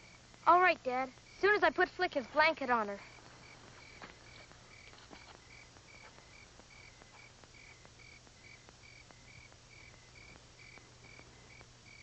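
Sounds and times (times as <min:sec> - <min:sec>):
crickets chirping: 0:00.0 - 0:12.0
faint low hum: 0:00.0 - 0:12.0
faint clicks: 0:03.1 - 0:12.0.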